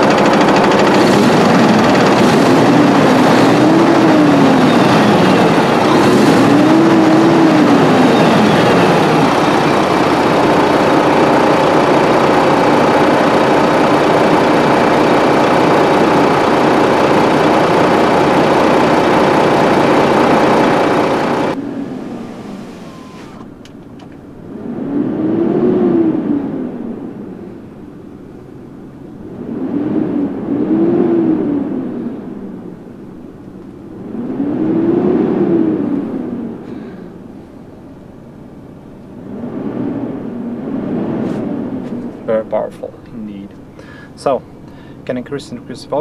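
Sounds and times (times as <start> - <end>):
truck diesel engine revving: 0.0 - 23.6.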